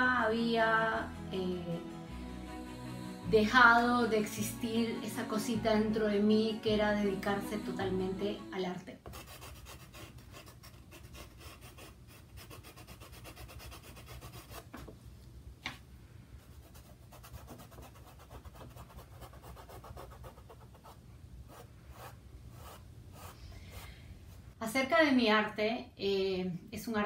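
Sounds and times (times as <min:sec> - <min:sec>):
drawing stick scratching on canvas: 0:09.0 - 0:14.9.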